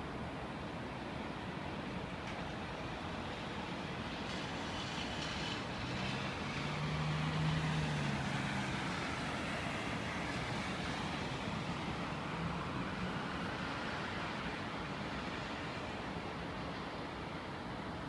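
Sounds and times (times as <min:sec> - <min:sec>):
distant city traffic: 0:00.0 - 0:18.0.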